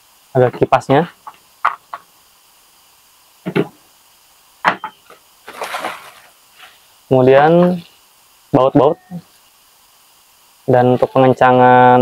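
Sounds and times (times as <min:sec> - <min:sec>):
plastic bag rustling: 0:05.4 - 0:06.8.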